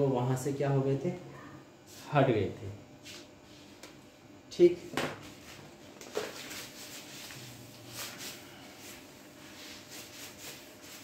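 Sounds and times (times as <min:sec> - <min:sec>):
cloth rubbing whiteboard: 0:05.2 - 0:11.0.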